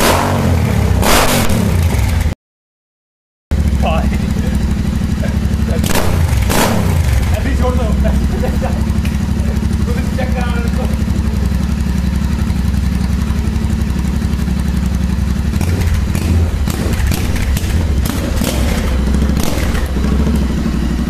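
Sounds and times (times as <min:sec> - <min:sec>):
motorcycle engine idling: 0:03.5 - 0:21.0.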